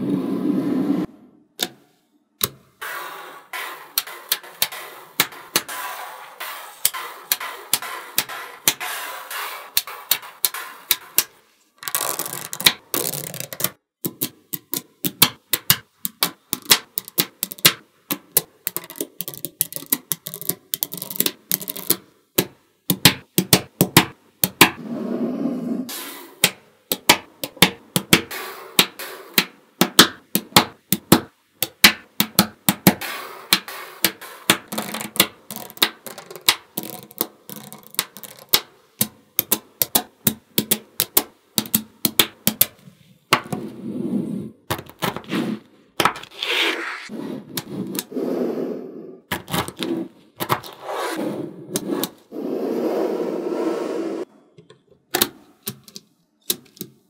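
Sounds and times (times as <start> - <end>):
magnetic balls clicking together: 3.9 - 5.8, 6.4 - 24.8, 26.4 - 43.6
magnetic balls rattling: 9.8 - 22.0, 34.1 - 38.6.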